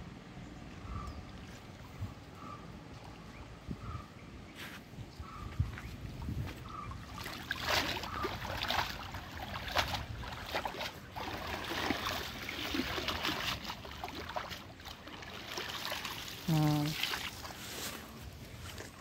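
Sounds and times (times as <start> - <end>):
water splashing: 6.9 - 19.0.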